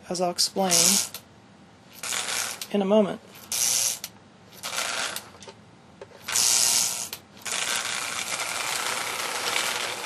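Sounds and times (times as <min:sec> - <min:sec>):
toy train motor whirring: 0:00.7 - 0:01.2, 0:02.0 - 0:02.7, 0:03.4 - 0:05.4, 0:06.2 - 0:10.0.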